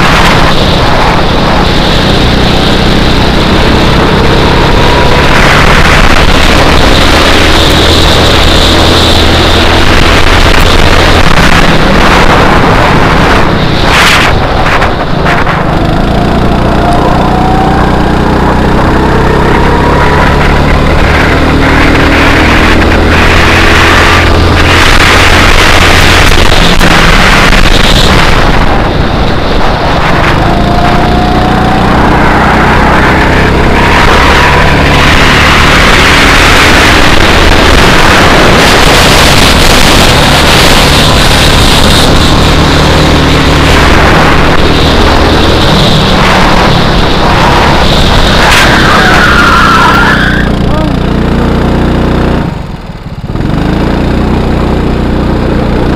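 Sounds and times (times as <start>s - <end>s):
wind buffeting microphone: 0.0s - 48.9s
go-kart engine accelerating: 0.0s - 55.9s.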